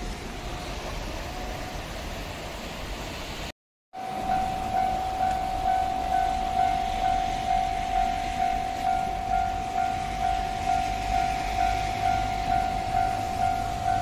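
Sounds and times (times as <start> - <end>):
level crossing alarm bell ringing: 4.0 - 14.0.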